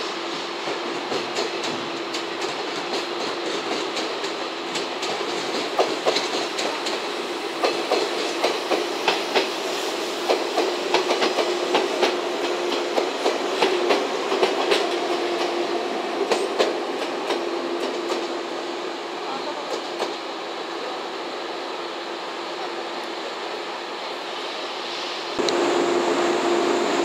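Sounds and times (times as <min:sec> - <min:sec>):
train hum: 0:00.0 - 0:27.0
train wheels clicking over rail joints: 0:00.6 - 0:09.6, 0:10.2 - 0:15.6, 0:16.2 - 0:18.4.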